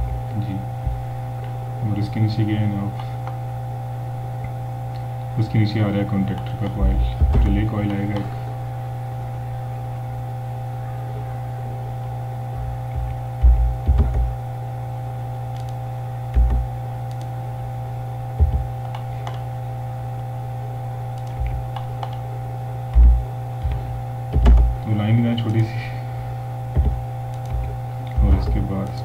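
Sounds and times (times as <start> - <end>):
electrical mains hum: 0.0 - 29.0
dull low thumps: 6.8 - 7.7, 12.6 - 14.5, 16.3 - 16.8, 18.4 - 18.8, 21.4 - 21.8, 22.9 - 24.8, 26.7 - 28.7
computer mouse clicks: 15.5 - 17.3, 18.4 - 19.5, 21.1 - 22.2, 26.8 - 29.0.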